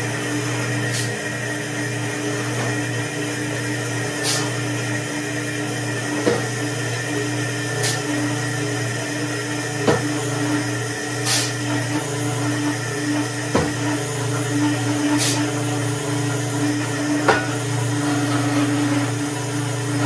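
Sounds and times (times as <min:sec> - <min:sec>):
shovel scraping sand: 0:11.3 - 0:11.5.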